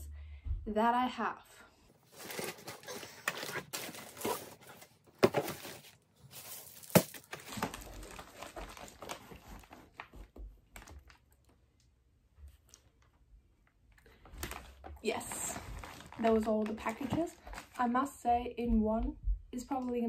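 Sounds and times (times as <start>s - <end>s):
plastic mailers crinkling: 2.0s - 11.4s, 14.1s - 17.8s
cardboard boxes being handled: 2.1s - 10.4s.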